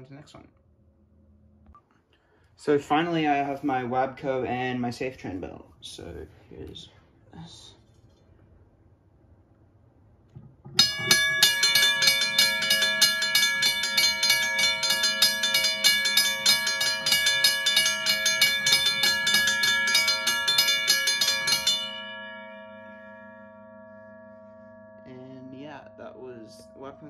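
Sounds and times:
railway crossing bells ringing: 10.8s - 27.0s.

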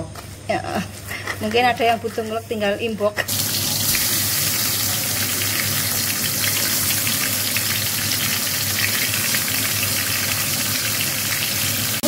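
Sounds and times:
fish sizzling in hot oil: 3.3s - 12.0s.

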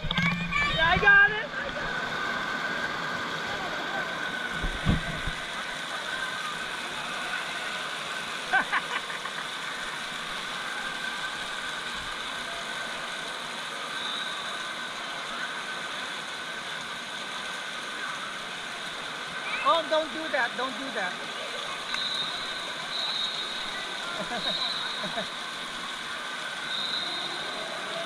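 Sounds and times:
constant hiss: 0.0s - 28.0s
mechanical hum: 0.0s - 28.0s.

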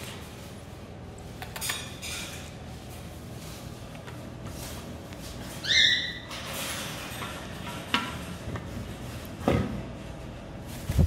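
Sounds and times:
parrot whistle-like call: 5.6s - 6.2s.

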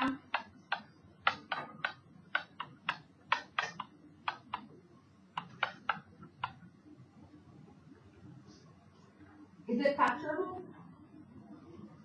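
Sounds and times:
stylus tapping on tablet: 0.0s - 6.7s.

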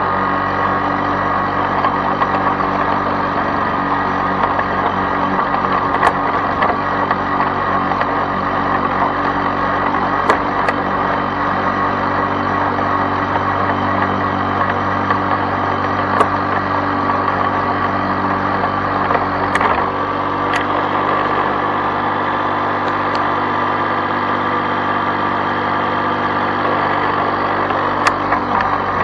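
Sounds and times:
lawn mower engine running: 0.0s - 29.0s.

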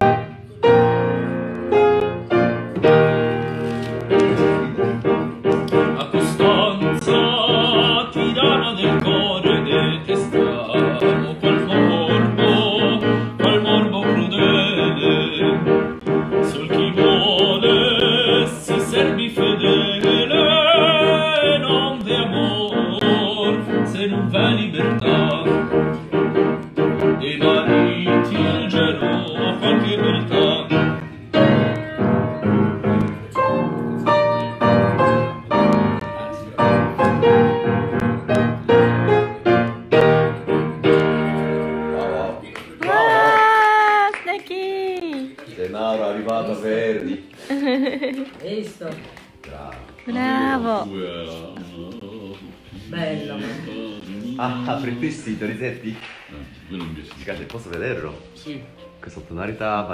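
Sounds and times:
upright piano: 0.0s - 59.9s
man singing operatically: 5.8s - 26.0s, 27.1s - 31.1s.

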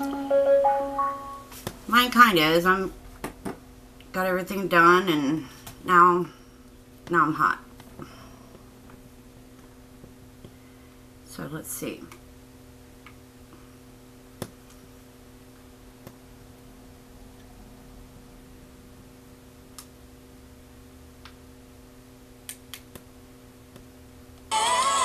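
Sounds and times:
steady electrical hum: 0.0s - 25.0s
radio playing music: 24.5s - 25.0s.

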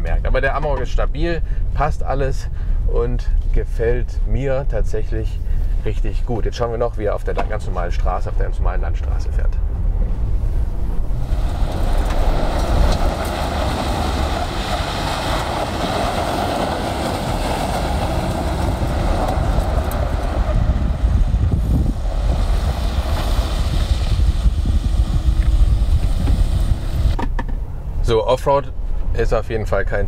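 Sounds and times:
pickup engine rumble: 6.9s - 30.0s
tyres hissing on gravel: 11.2s - 20.5s, 21.9s - 27.0s.

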